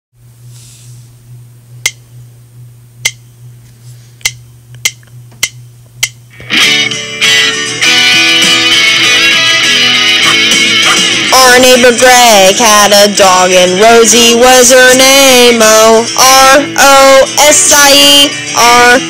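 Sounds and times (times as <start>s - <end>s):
low steady hum: 0.2s - 6.4s
count-in clicks: 4.2s - 6.2s
backing music with strummed guitar: 6.3s - 19.0s.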